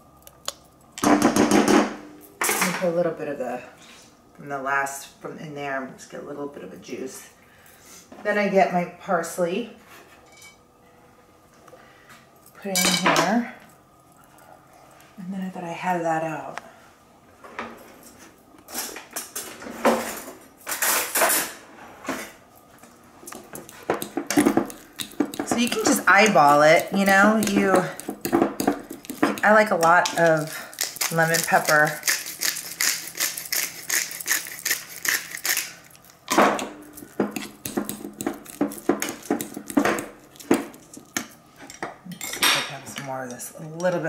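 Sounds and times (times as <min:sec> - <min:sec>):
fork scraping metal bowl: 0:23.6 - 0:35.7, 0:37.0 - 0:40.2
spice grinder grinding: 0:23.6 - 0:41.4.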